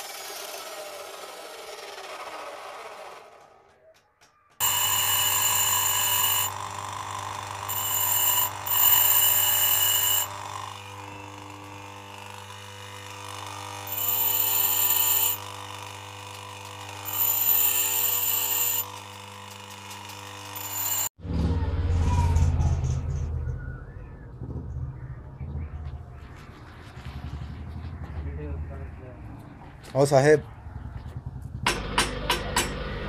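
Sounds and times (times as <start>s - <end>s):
bench grinder motor running: 4.6s - 21.2s
metal grinding screech: 7.3s - 12.6s, 13.2s - 15.6s, 16.4s - 21.1s
low rumble: 21.2s - 31.7s.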